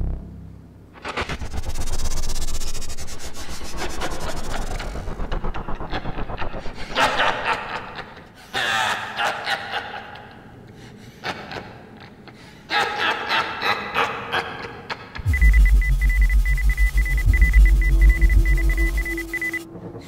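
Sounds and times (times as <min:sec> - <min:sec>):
low rumble: 0:00.0 - 0:08.2, 0:15.2 - 0:20.0
man laughing: 0:06.8 - 0:10.6, 0:11.2 - 0:15.2.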